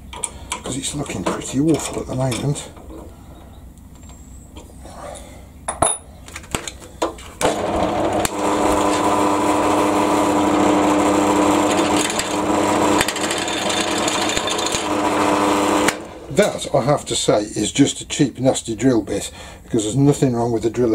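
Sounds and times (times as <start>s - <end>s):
pillar drill boring into wood: 7.4s - 16.4s.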